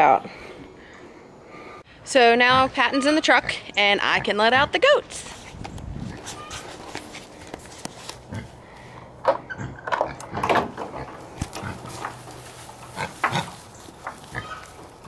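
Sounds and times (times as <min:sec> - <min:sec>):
farm animal calls: 0:10.9 - 0:15.0.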